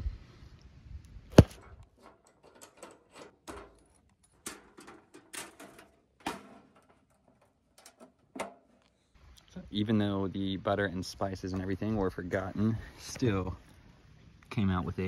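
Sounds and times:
camp stove panels clicking: 1.8 - 8.9.

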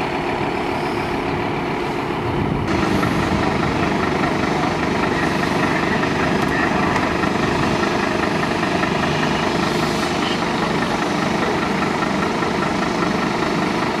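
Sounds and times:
diesel engines running: 0.0 - 14.0
fire pump running: 0.0 - 14.0.

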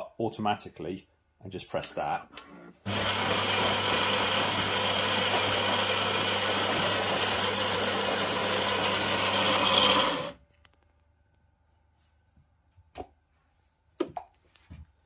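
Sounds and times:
coffee grinder whirring: 2.8 - 10.4.

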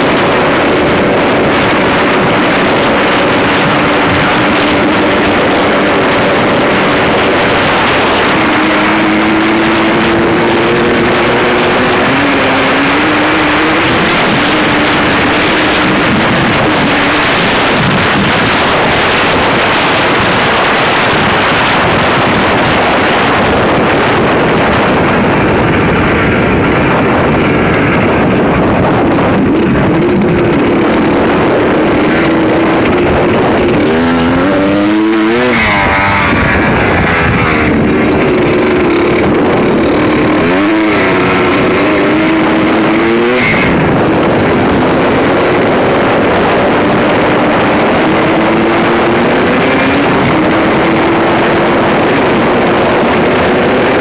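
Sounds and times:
dirt bike engine revving: 0.0 - 54.0
wind on microphone: 0.0 - 54.0.

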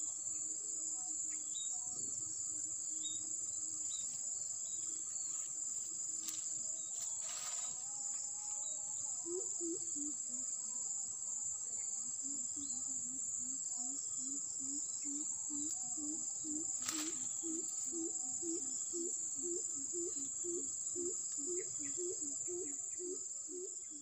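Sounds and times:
high-pitched insect trilling: 0.0 - 24.0.

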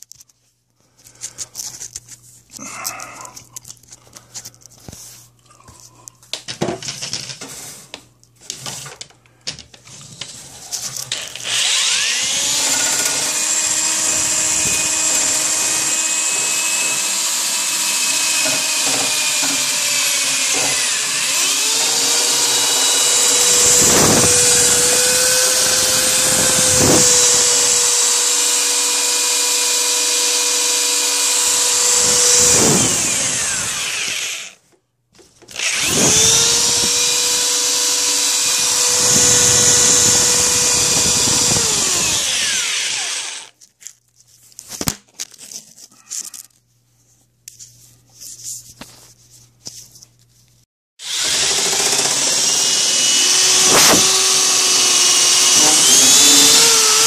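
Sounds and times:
power drill motor whining: 11.0 - 34.6, 35.5 - 43.6, 51.0 - 57.0.

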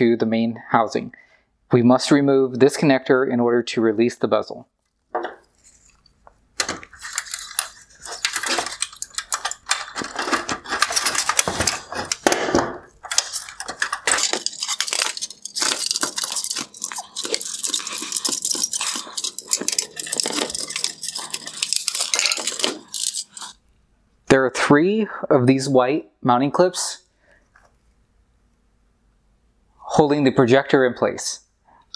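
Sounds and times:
plastic clicking and scraping: 4.8 - 23.6.

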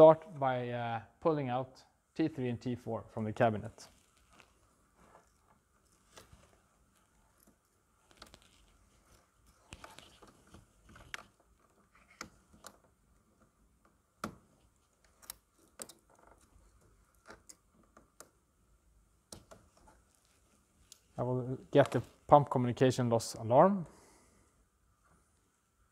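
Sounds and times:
gloved hands handling wires: 3.5 - 22.4.

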